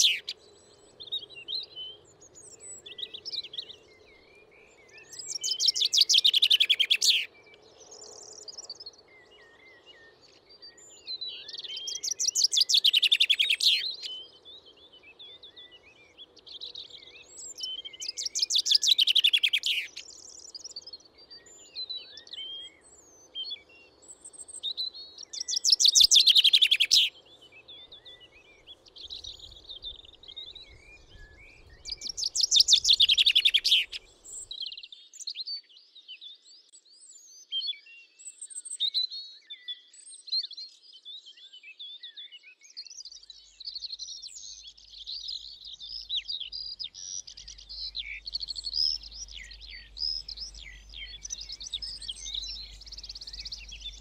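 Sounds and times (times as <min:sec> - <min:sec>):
songbird trilling: 0:00.0 - 0:00.4, 0:05.1 - 0:07.3, 0:11.7 - 0:14.2, 0:17.4 - 0:20.1, 0:25.3 - 0:27.1, 0:27.8 - 0:34.5, 0:44.6 - 0:54.0
other birds chirping: 0:25.3 - 0:34.5, 0:43.4 - 0:54.0.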